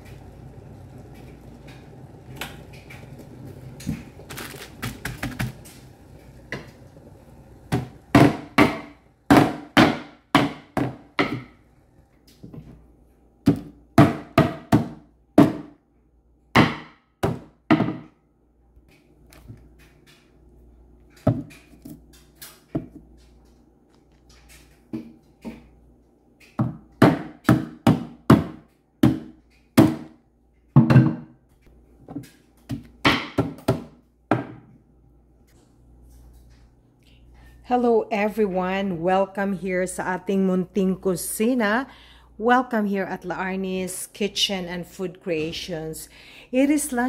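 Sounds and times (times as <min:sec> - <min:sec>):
pounding on a wooden cutting board: 0:07.7 - 0:11.5, 0:13.5 - 0:15.8, 0:16.6 - 0:18.0, 0:26.6 - 0:30.1.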